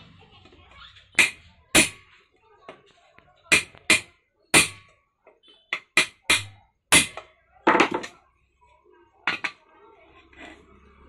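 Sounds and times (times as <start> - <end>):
hammer striking metal lid: 1.2 - 2.0, 3.5 - 4.8, 5.8 - 7.2.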